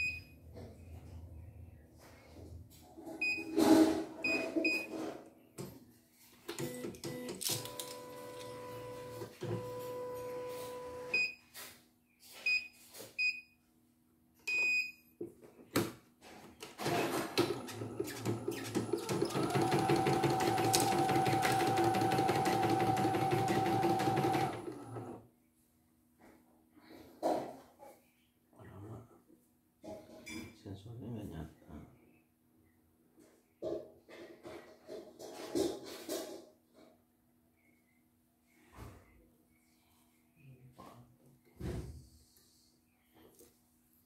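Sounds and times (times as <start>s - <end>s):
embroidery machine stitching: 16.8s - 25.2s.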